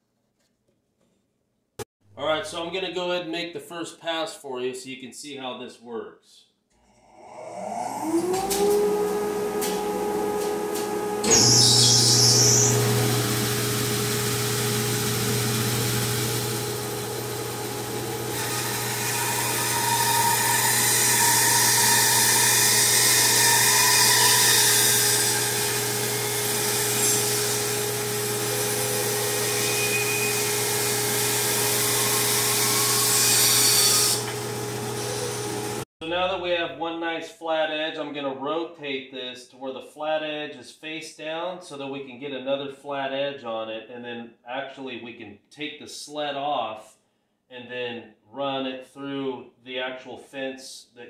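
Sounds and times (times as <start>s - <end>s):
bandsaw motor hum: 7.1s - 35.8s.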